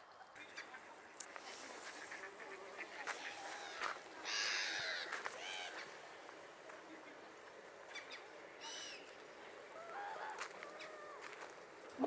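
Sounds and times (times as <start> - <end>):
ducks and waterbirds calling: 0.4 - 6.0.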